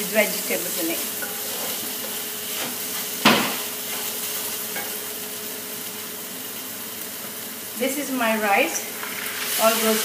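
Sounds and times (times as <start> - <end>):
vegetables sizzling in a wok: 0.0 - 10.0
spatula stirring in a wok: 0.1 - 5.3
sharp knock against pan: 3.2 - 3.6.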